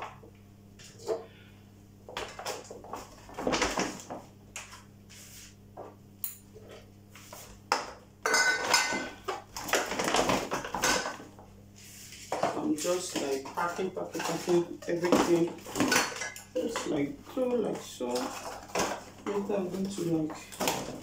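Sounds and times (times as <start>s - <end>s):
glass jars and tins clinking: 8.2s - 9.2s, 13.4s - 17.1s.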